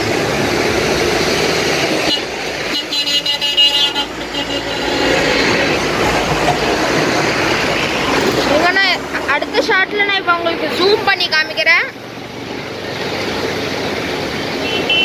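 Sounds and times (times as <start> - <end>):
floodwater rushing: 0.0 - 15.0
passing traffic: 0.0 - 15.0
vehicle horn: 2.0 - 5.2, 14.6 - 15.0.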